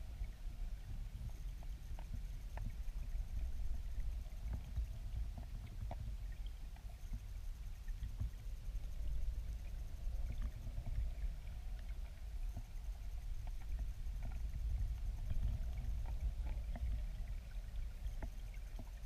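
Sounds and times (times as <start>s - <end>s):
river water rumbling underwater: 0.0s - 19.0s
faint scattered clicks: 0.1s - 3.4s.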